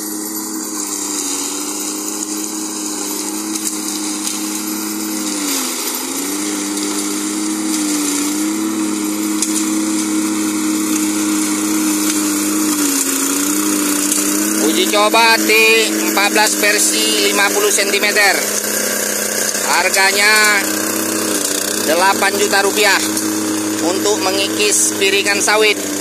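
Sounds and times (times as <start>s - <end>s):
blade scraping grass and topsoil: 0.0s - 26.0s
small engine running under load: 0.0s - 26.0s.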